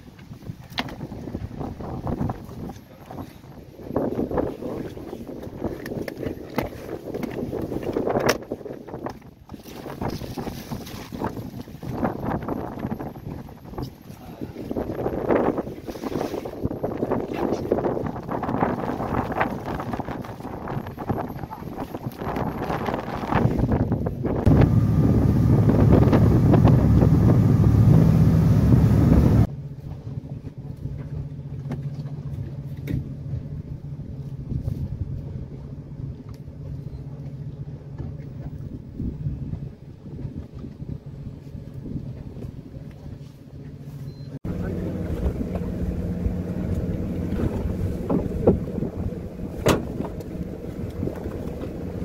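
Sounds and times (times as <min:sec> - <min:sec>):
wind on microphone: 0:00.0 - 0:31.3, 0:33.0 - 0:37.0, 0:38.1 - 0:43.3, 0:44.4 - 0:52.0
boat engine humming: 0:10.8 - 0:52.0.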